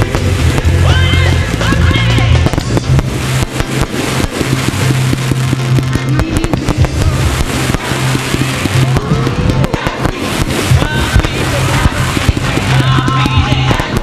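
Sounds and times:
fireworks bangs and crackles: 0.0s - 14.0s
loud music with bass line: 0.0s - 14.0s.

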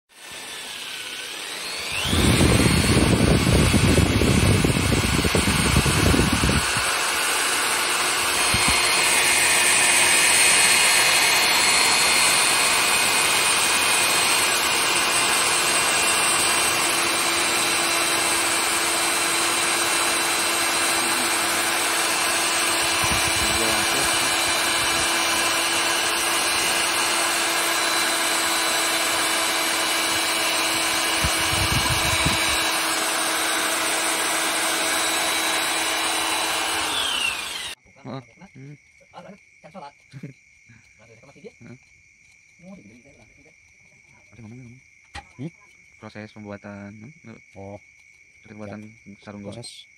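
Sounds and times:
electric drill boring into wood: 0.1s - 37.8s.

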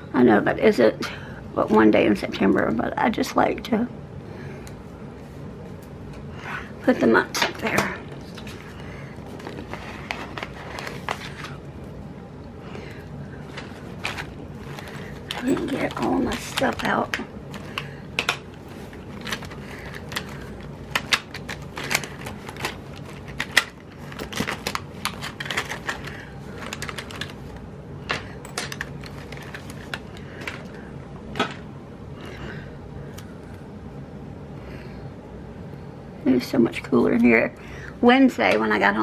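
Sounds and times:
low steady hum: 0.0s - 39.0s
paper clicking and rustling: 7.6s - 11.6s, 13.5s - 30.8s.

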